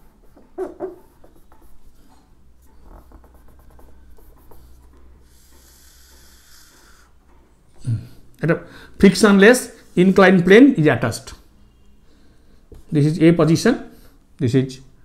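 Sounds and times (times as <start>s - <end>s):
scratching of writing strokes: 0.0s - 7.0s.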